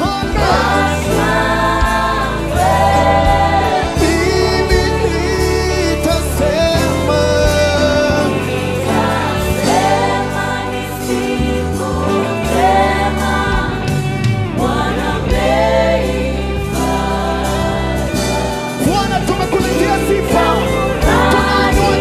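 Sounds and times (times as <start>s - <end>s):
gospel choir singing: 0.0s - 22.0s
steady bass line: 0.0s - 22.0s.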